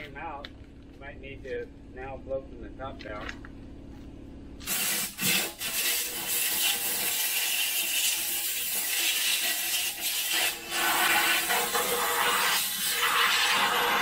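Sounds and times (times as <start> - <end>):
spray wand hissing: 4.6 - 14.0.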